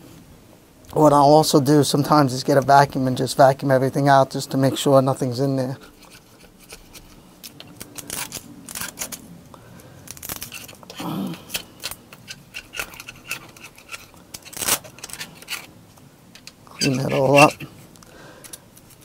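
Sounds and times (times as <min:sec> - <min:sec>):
hand scraper scratching metal: 0:05.8 - 0:09.2, 0:11.5 - 0:15.7, 0:16.4 - 0:17.8
rag rustling: 0:10.1 - 0:19.0.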